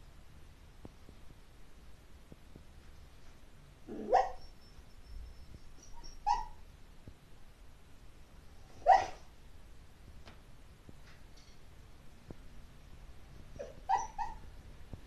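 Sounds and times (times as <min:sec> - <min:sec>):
dog crying in sleep: 0:03.9 - 0:04.5, 0:08.8 - 0:09.3, 0:13.6 - 0:14.4.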